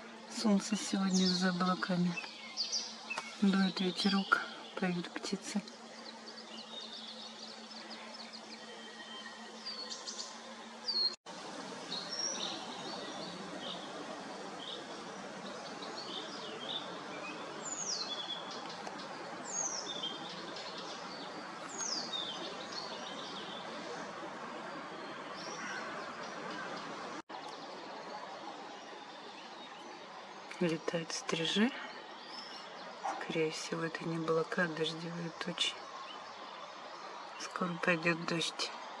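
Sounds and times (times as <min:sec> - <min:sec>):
birds chirping and calling: 0:00.0 - 0:11.2, 0:11.9 - 0:24.2
breeze rustling tree leaves: 0:00.0 - 0:39.0.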